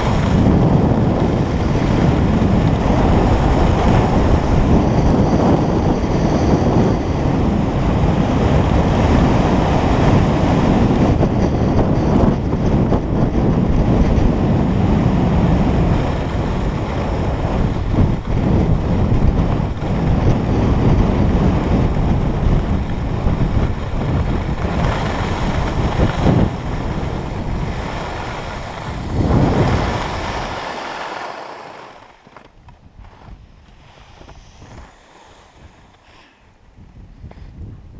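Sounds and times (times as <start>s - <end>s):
skis sliding on snow: 0.0s - 12.3s, 13.4s - 36.5s
wind on microphone: 0.0s - 37.9s.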